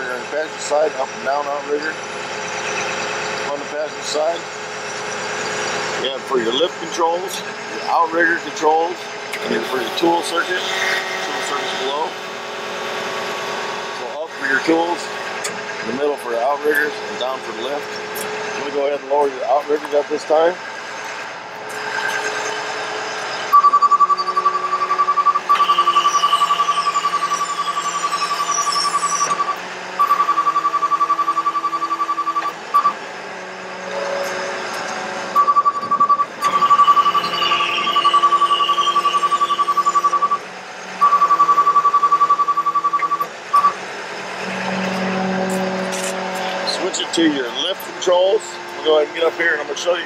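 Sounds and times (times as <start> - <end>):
alarm beeping rapidly: 23.4 - 33.0, 35.3 - 43.8.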